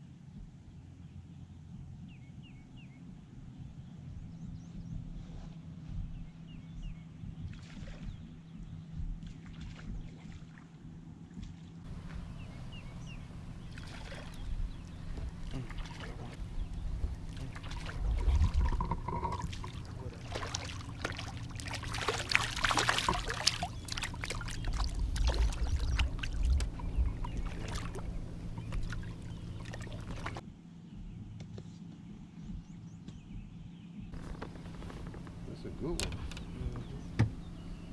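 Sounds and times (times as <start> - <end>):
steady low hum: 0.0 - 37.9
water splashing and sloshing: 7.3 - 8.4, 9.0 - 30.4, 34.1 - 37.9.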